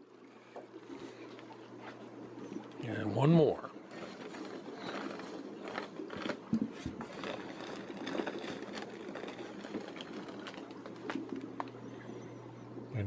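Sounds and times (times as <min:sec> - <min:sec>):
packing material rustling: 0:03.9 - 0:11.9.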